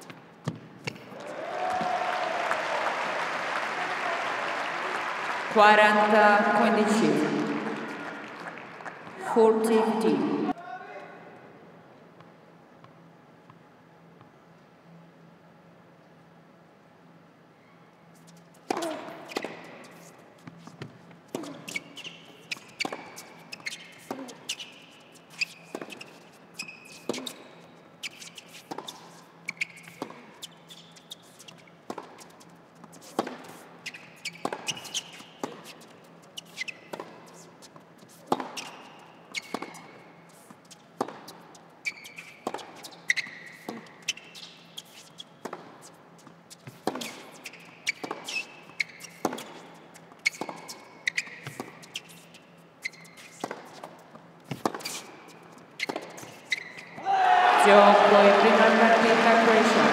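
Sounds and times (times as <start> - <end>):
tennis ball bounces: 0.0 - 1.1, 31.5 - 40.0, 40.9 - 41.5, 42.2 - 44.1, 44.8 - 45.9, 46.5 - 52.2, 52.8 - 57.0
shoes squeaking on court: 0.0 - 1.3, 6.2 - 10.6, 17.6 - 57.1.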